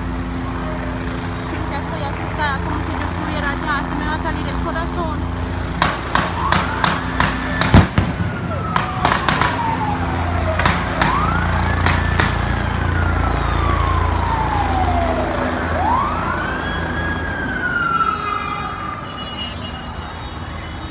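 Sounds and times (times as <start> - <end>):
wailing siren: 0.0 - 20.9
sharp bangs: 5.7 - 9.8.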